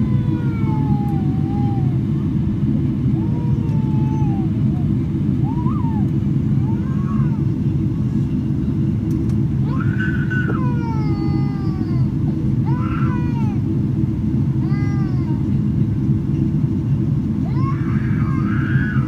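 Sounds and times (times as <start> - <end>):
airplane cabin rumble: 0.0 - 19.0
baby crying: 3.2 - 4.6, 5.5 - 7.5, 9.7 - 12.1, 12.7 - 13.6.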